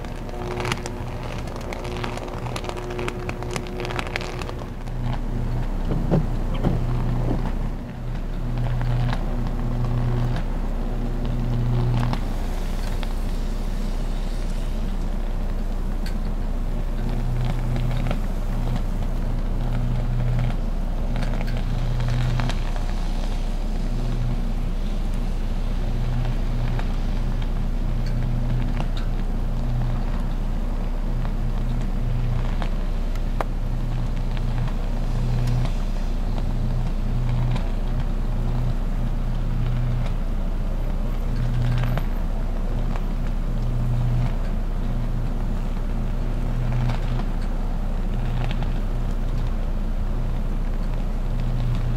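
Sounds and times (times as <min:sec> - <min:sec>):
crackling pops: 0:00.0 - 0:13.4, 0:14.4 - 0:40.3
electrical arc buzzing: 0:00.0 - 0:40.2.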